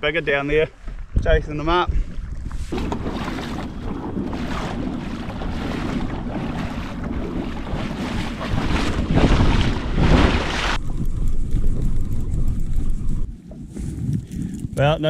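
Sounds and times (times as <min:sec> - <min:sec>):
wind buffeting microphone: 0:00.8 - 0:15.0
water splashing against hull: 0:02.0 - 0:13.3.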